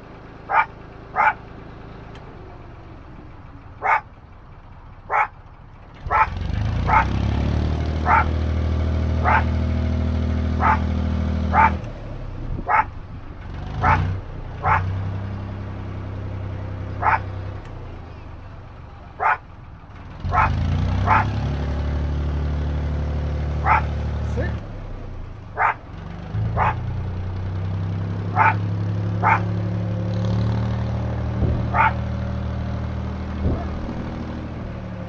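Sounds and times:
boat diesel engine running: 0.0s - 35.0s
dog barking: 0.5s - 1.4s, 3.8s - 4.1s, 5.1s - 5.3s, 6.1s - 7.2s, 8.0s - 8.4s, 9.2s - 9.6s, 10.6s - 10.9s, 11.5s - 11.8s, 12.7s - 12.9s, 13.8s - 14.9s, 17.0s - 17.3s, 19.2s - 19.4s, 20.3s - 21.3s, 23.6s - 24.0s, 25.6s - 25.8s, 26.5s - 26.9s, 28.3s - 29.6s, 31.7s - 32.0s.

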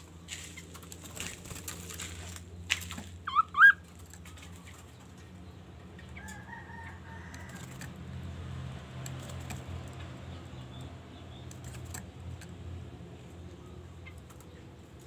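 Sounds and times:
wings fluttering: 0.0s - 5.4s, 6.2s - 8.1s, 8.9s - 12.6s.

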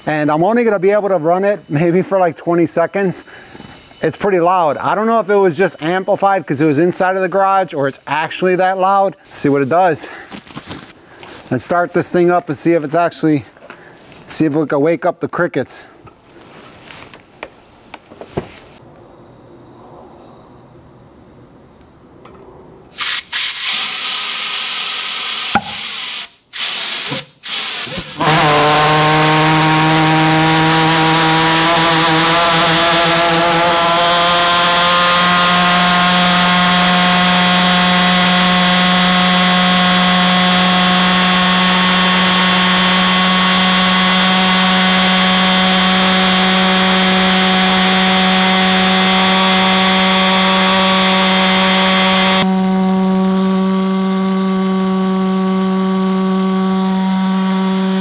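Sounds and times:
pulsejet engine buzzing drone: 28.2s - 58.0s.

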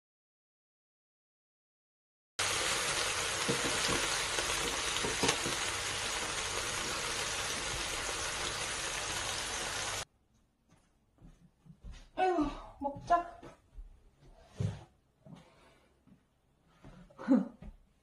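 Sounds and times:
sizzling hiss with crackles: 2.4s - 10.0s.

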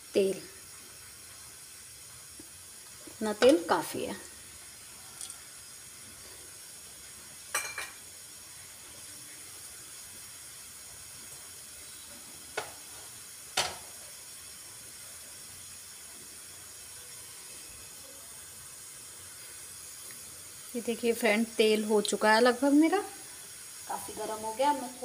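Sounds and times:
oil sizzling: 0.0s - 25.0s.

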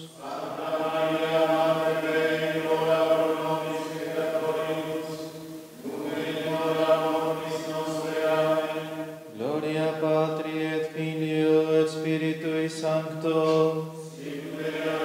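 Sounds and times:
group of voices chanting: 0.0s - 9.7s, 14.0s - 15.0s.

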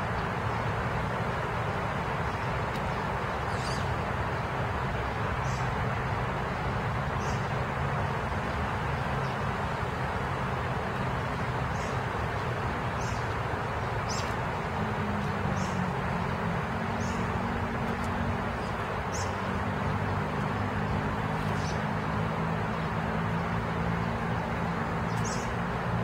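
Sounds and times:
rain falling: 0.0s - 26.0s
bird chirping: 3.5s - 3.9s, 14.0s - 14.4s, 25.0s - 25.6s.

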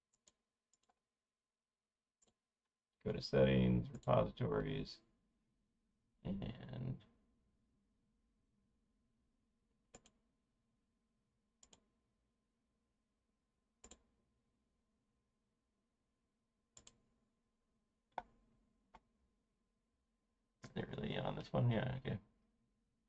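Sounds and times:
computer mouse clicking: 9.9s - 10.2s, 11.6s - 11.9s, 13.8s - 14.1s, 16.8s - 17.0s.

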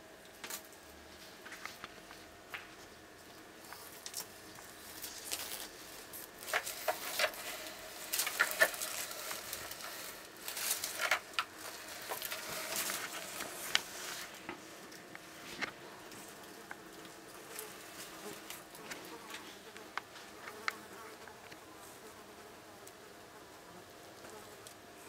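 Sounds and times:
lizard claws scratching and rustling: 3.6s - 20.8s.

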